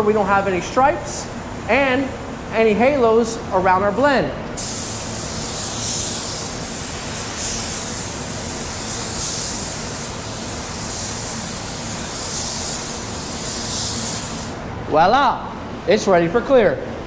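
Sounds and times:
paint spray gun hissing: 0:04.6 - 0:14.6.

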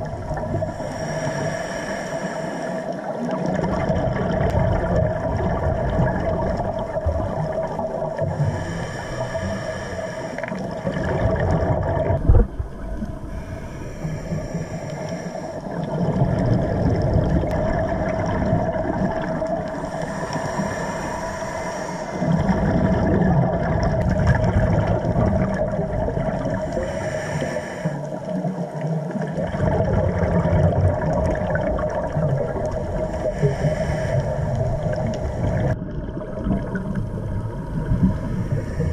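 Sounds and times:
regulator hissing inhale: 0:00.6 - 0:03.2, 0:08.3 - 0:10.8, 0:13.2 - 0:15.9, 0:19.4 - 0:22.6, 0:26.4 - 0:28.4, 0:32.6 - 0:35.8, 0:38.0 - 0:38.9
steady hum: 0:08.3 - 0:28.2
bubbling exhalations: 0:10.4 - 0:13.4, 0:15.6 - 0:27.1, 0:29.2 - 0:38.9.

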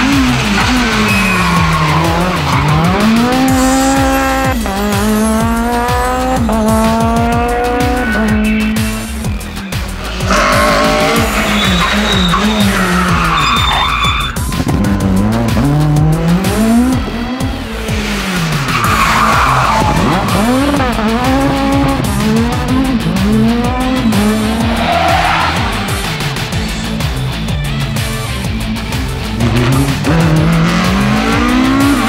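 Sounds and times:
rally car engine revving: 0:00.0 - 0:32.0
tyre squeal: 0:00.6 - 0:04.6, 0:10.2 - 0:14.5.

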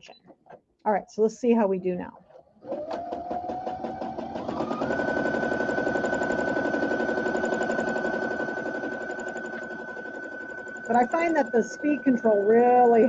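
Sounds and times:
sewing machine stitching: 0:02.2 - 0:13.0
sewing machine motor whine: 0:02.6 - 0:13.0.

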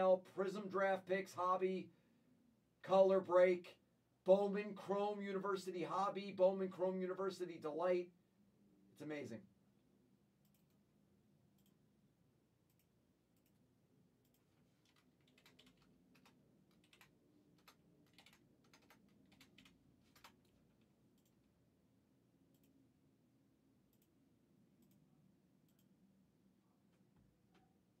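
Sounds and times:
computer keyboard clicking: 0:14.2 - 0:20.6.

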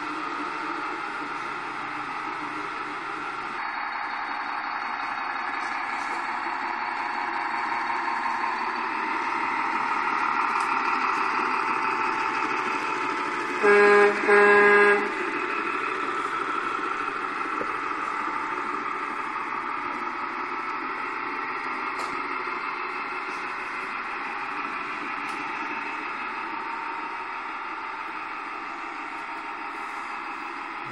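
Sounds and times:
truck horn toots: 0:13.6 - 0:15.3.

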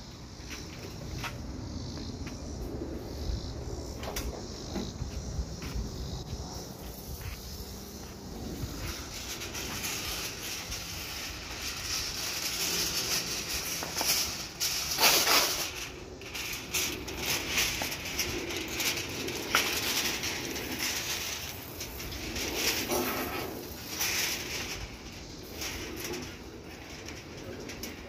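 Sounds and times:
aluminum foil crinkling: 0:08.6 - 0:28.0.

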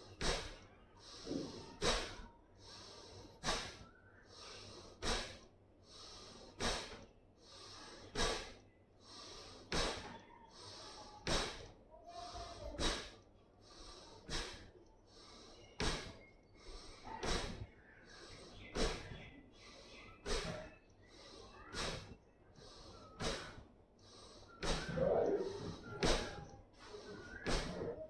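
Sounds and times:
soft in-breath: 0:00.0 - 0:28.0
sharp nasal exhalations: 0:00.2 - 0:28.0.

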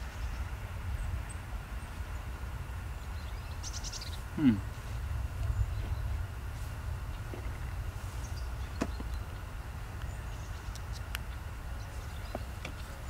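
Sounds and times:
low rumble: 0:00.0 - 0:12.0
faint bird chirps: 0:03.0 - 0:06.3.

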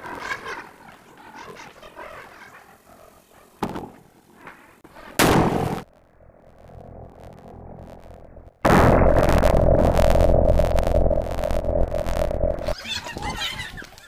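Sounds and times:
explosion with crackling blast: 0:05.2 - 0:05.9, 0:07.1 - 0:12.8.

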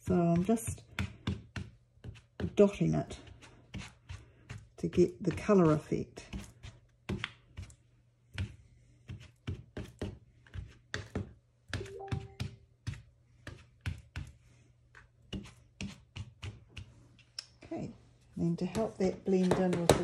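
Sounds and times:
ink pad tapping on paper: 0:18.6 - 0:20.0.

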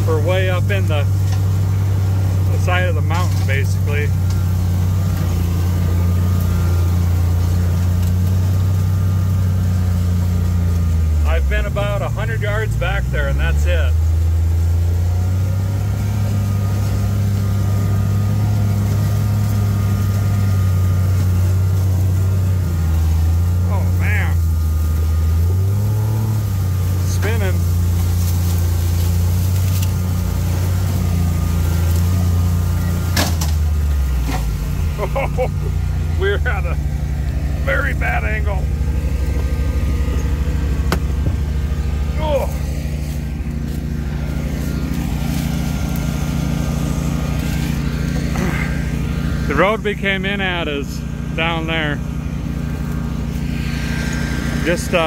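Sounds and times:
vehicle engine drone: 0:00.0 - 0:55.0.

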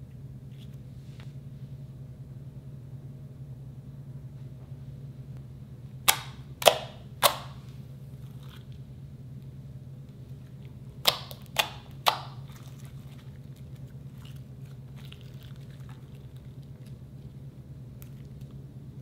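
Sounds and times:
steady low hum: 0:00.0 - 0:19.0
slime being stretched: 0:11.1 - 0:17.4.

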